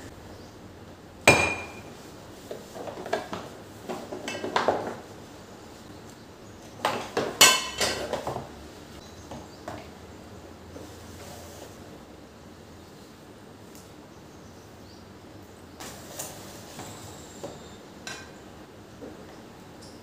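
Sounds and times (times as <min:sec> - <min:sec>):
kitchen containers on countertop: 0:01.3 - 0:05.5, 0:06.6 - 0:08.6.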